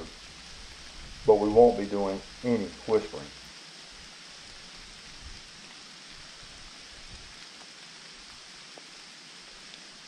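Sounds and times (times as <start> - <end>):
light rain on leaves: 0.0 - 10.0
water drip ticks: 7.1 - 9.9.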